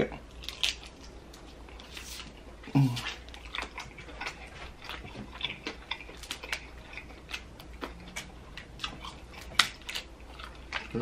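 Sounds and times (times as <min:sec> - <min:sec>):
chewing and lip-smacking: 0:00.3 - 0:11.0
person humming low: 0:02.7 - 0:03.1
crab shell cracking: 0:08.9 - 0:11.0.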